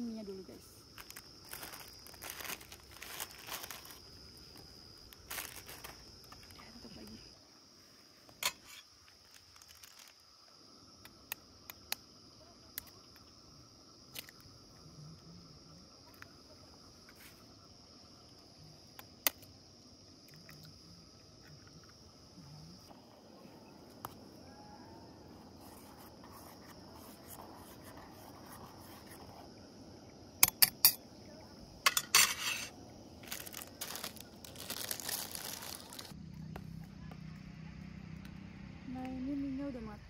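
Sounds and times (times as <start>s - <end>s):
crickets chirping: 0.0s - 40.0s
sachets crinkling and tearing: 0.9s - 6.7s, 9.2s - 10.2s, 33.2s - 36.2s.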